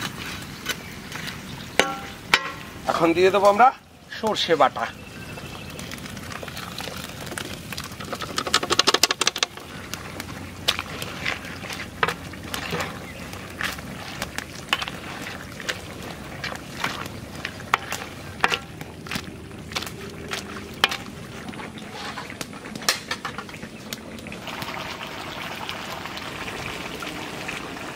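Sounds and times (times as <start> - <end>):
paste sizzling in hot oil: 5.7 - 23.6
metal spoon stirring against pan: 7.2 - 23.6.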